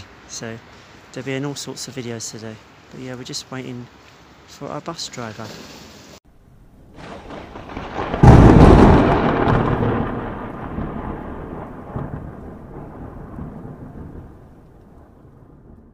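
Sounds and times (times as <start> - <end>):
rising hiss: 5.1 - 6.2
loud crash with rumble: 6.9 - 14.2.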